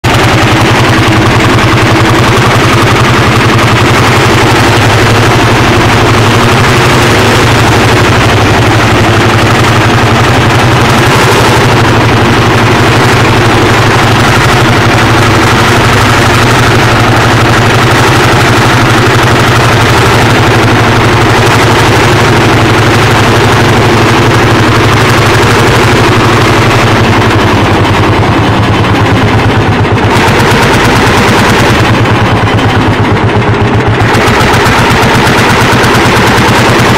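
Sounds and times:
tractor engine running under load: 0.0s - 36.9s.

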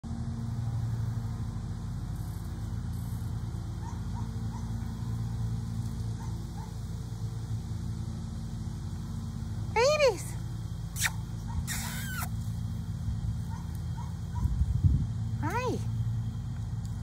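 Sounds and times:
low machine hum: 0.0s - 17.0s
short rising squeaks: 10.9s - 12.4s.

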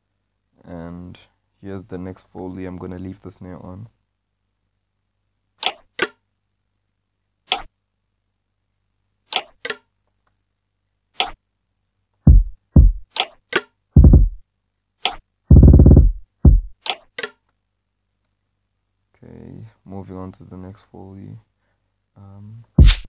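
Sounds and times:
deep kick and bass hits: 12.3s - 13.0s, 14.0s - 14.4s, 15.5s - 16.8s, 22.8s - 23.0s
percussion clicks and snare hits: 12.3s - 14.4s, 15.0s - 17.4s, 22.8s - 23.0s.

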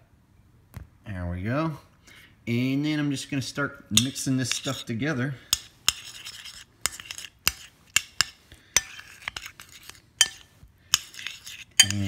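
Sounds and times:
metal spoon clinking on bowl: 4.0s - 4.8s, 6.9s - 12.0s.

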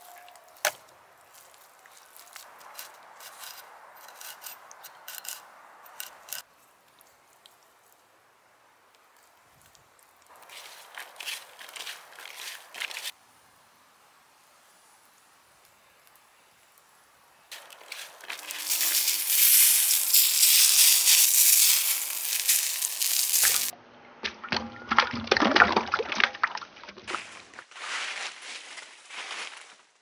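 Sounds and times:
roast chicken sizzling: 16.0s - 23.7s
sharp crackles and clicks: 17.5s - 23.7s.

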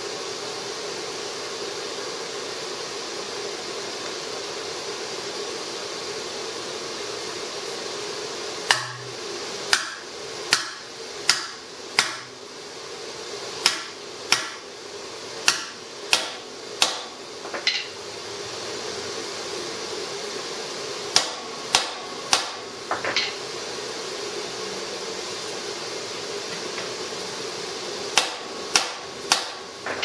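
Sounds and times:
steady background hum: 0.0s - 30.0s
mallet blows on metal: 8.7s - 12.3s.

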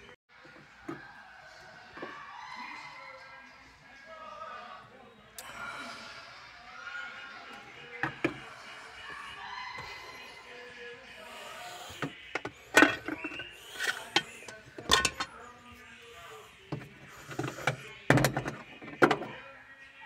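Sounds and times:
plastic rubbing: 11.2s - 15.3s, 16.6s - 19.3s
plastic parts knocking and clicking: 12.0s - 15.3s, 16.7s - 19.3s.

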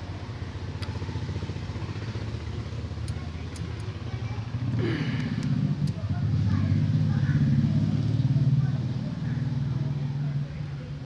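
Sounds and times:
engine running: 0.0s - 11.0s
faint clicks: 3.0s - 4.0s.

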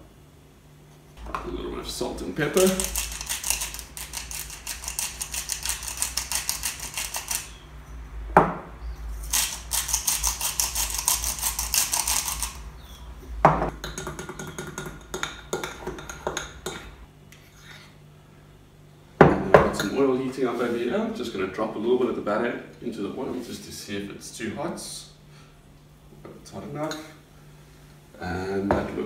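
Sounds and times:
grinders ratcheting with rapid clicks: 2.5s - 7.5s, 9.3s - 12.6s
knock on bowl: 8.4s - 8.6s.

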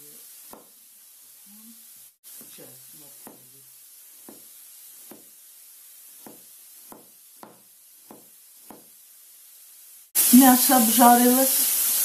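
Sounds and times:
knife knocking on cutting board: 3.2s - 3.5s, 4.2s - 5.3s, 6.2s - 8.9s.

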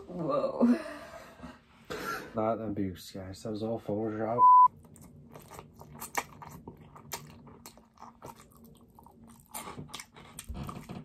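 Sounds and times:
person slurping and chewing noodles: 4.7s - 11.0s.

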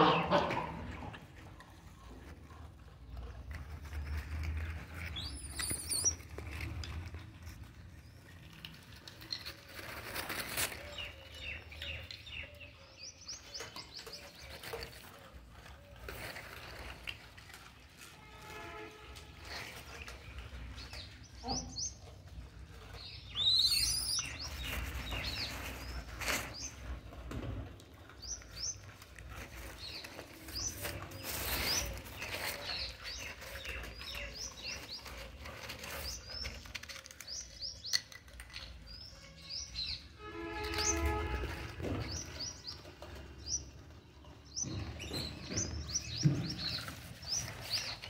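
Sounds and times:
rustling: 0.0s - 44.0s, 44.6s - 48.0s
birds chirping: 22.9s - 27.0s, 28.2s - 48.0s.

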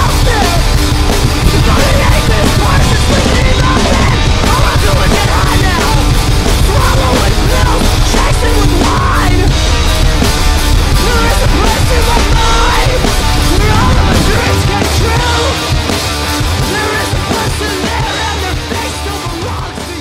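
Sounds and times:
hard rock music with drums: 0.0s - 20.0s.

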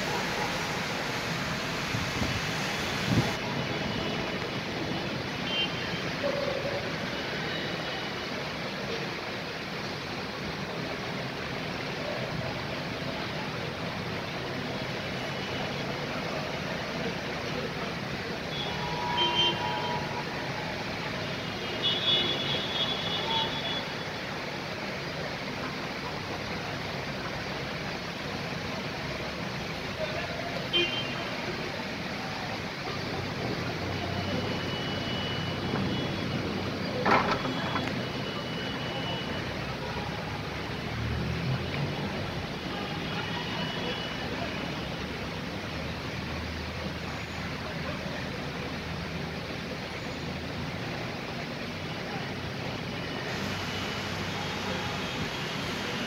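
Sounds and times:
car traffic on wet street: 0.0s - 56.0s
rain: 0.0s - 56.0s
car horn toot: 18.5s - 20.2s.

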